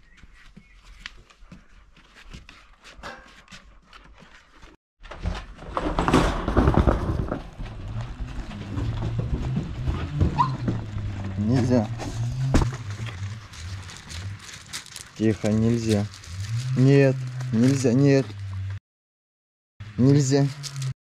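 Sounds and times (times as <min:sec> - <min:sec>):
dogs scuffling and rustling: 0:12.0 - 0:17.8.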